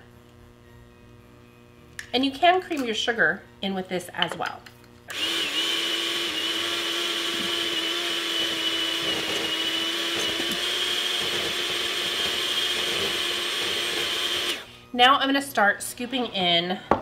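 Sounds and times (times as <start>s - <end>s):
electric hand mixer whining: 5.1s - 14.9s.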